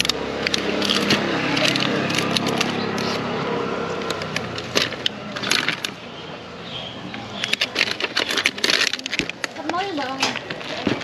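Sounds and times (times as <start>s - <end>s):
plastic containers clicking: 7.2s - 11.0s.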